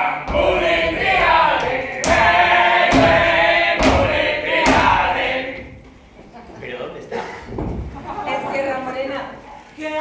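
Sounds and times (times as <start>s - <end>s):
sharp percussive hits: 0.3s - 5.5s.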